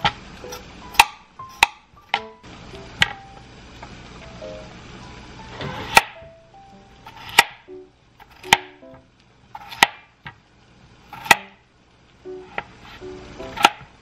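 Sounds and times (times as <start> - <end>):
soft plucked background music: 0.0 - 9.2, 12.2 - 14.0
knife chopping on cutting board: 0.9 - 2.3, 5.7 - 6.2, 7.1 - 7.6, 8.2 - 8.8, 9.6 - 10.4, 11.1 - 11.6, 12.5 - 13.9.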